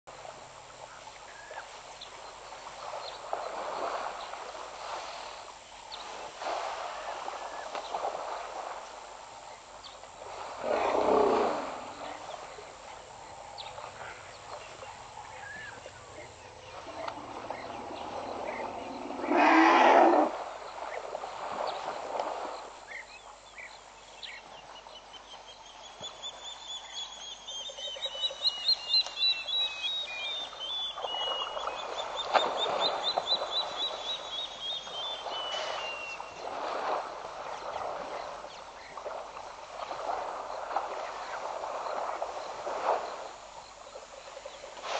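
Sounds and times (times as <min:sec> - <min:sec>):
elephant rough bursts: 0:10.3 - 0:12.0, 0:16.8 - 0:20.5.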